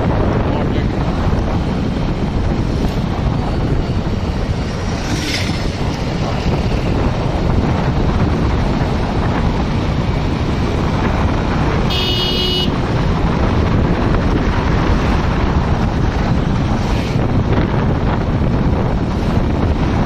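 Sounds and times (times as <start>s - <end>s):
road and vehicle rumble: 0.0s - 20.0s
wind buffeting microphone: 0.0s - 20.0s
high-pitched vehicle horn toot: 11.9s - 12.8s.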